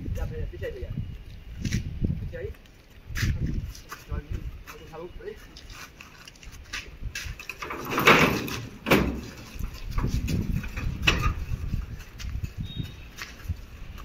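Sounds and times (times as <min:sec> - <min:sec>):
knocks and bangs: 0:07.6 - 0:09.4.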